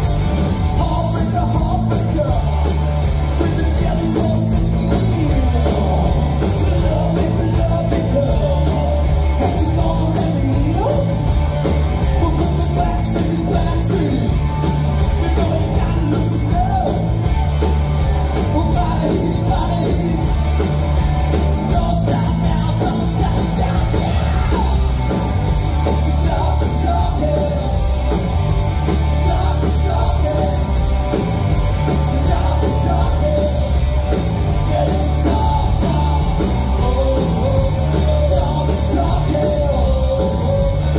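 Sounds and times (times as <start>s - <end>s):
live rock band playing: 0.0s - 40.9s
person singing: 25.9s - 28.0s, 29.1s - 30.7s, 31.8s - 33.8s, 34.4s - 40.9s.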